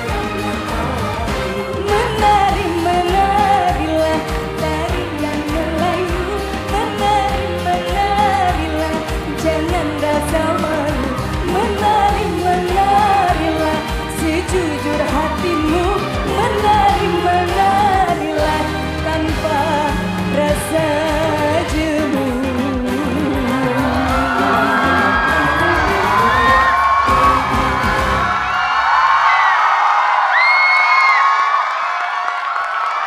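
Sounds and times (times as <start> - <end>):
pop band with beat and bass: 0.0 - 28.7
woman singing: 1.4 - 26.8.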